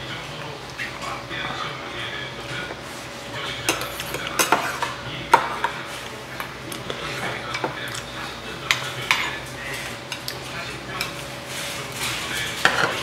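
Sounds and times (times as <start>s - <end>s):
spoons clinking against bowls: 3.4s - 5.8s, 6.4s - 11.2s, 11.9s - 13.0s.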